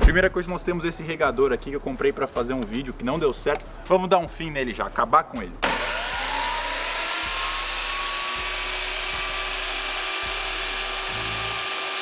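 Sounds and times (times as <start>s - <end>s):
table saw motor whine: 5.6s - 12.0s.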